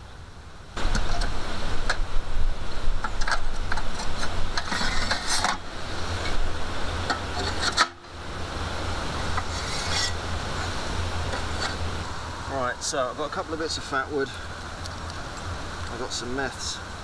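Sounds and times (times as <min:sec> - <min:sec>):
steady low rumble: 0:00.0 - 0:17.0
metal parts clinking and scraping: 0:03.1 - 0:05.6, 0:09.4 - 0:10.2.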